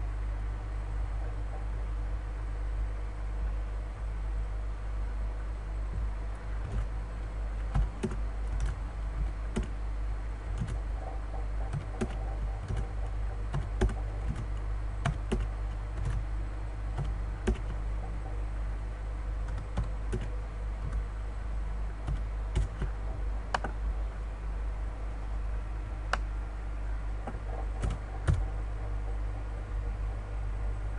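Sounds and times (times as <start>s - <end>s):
low hum: 0.0s - 30.9s
keyboard typing: 7.6s - 9.8s, 10.5s - 16.3s, 16.9s - 18.2s, 19.4s - 21.1s, 27.3s - 28.6s.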